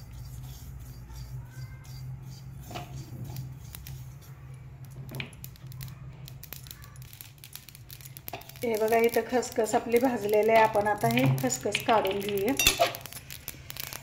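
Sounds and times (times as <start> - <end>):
spatula scraping metal pan: 0.0 - 4.4
steady low hum: 0.0 - 14.0.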